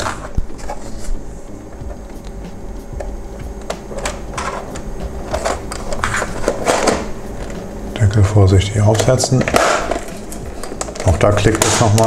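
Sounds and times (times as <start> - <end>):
steady low hum: 0.0 - 12.0
plastic parts clicking and scraping: 8.9 - 12.0.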